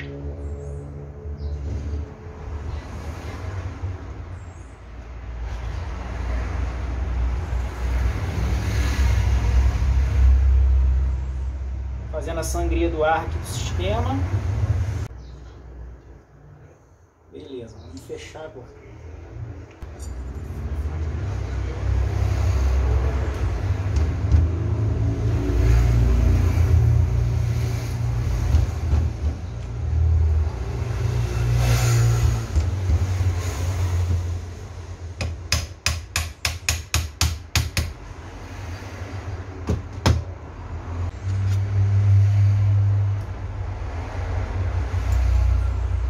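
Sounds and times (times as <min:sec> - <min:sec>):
engine rumbling: 0:00.0 - 0:36.6, 0:37.4 - 0:46.0
sharp metallic taps: 0:35.2 - 0:38.0.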